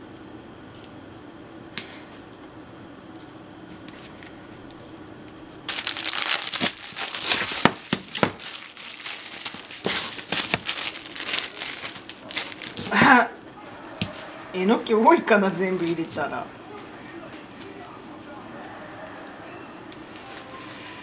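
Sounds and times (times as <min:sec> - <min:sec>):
low steady hum: 0:00.0 - 0:21.0
plastic packaging crinkling: 0:05.5 - 0:13.2, 0:15.5 - 0:16.8.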